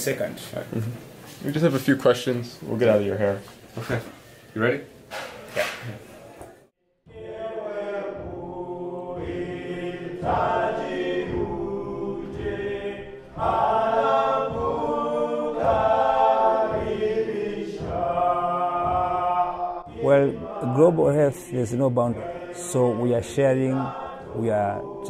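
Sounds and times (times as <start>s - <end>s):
choir singing in harmony: 7.0s - 25.0s
steady beat: 7.1s - 25.0s.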